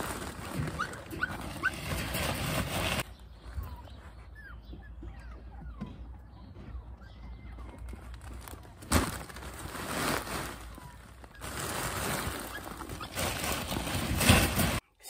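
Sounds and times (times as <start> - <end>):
plastic crinkling and rustling: 0.0 - 3.1, 7.8 - 14.8
sack thudding down: 8.9 - 10.6.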